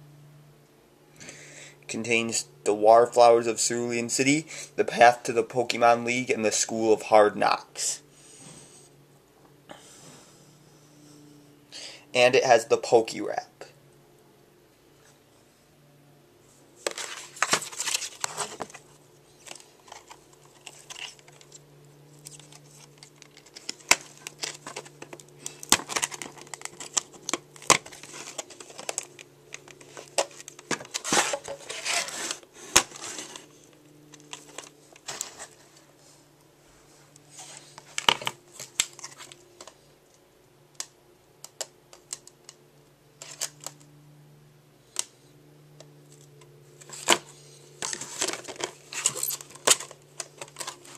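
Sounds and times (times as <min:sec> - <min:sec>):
shrink wrap crinkling and tearing: 0:16.9 - 0:33.4.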